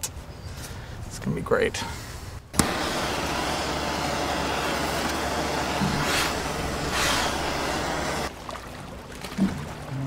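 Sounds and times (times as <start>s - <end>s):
gas torch hissing: 2.5s - 8.3s
torch ignition click: 2.5s - 8.3s.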